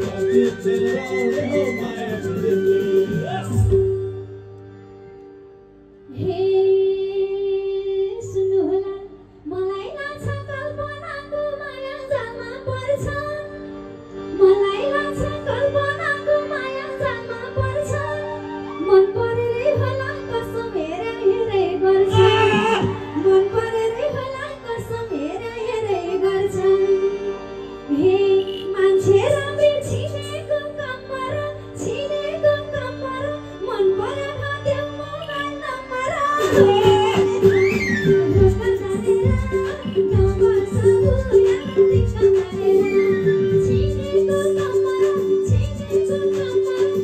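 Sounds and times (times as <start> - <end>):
woman singing into a microphone: 0.0 - 4.4, 6.1 - 47.0
band accompaniment: 0.0 - 5.3, 12.6 - 26.8, 33.5 - 47.0.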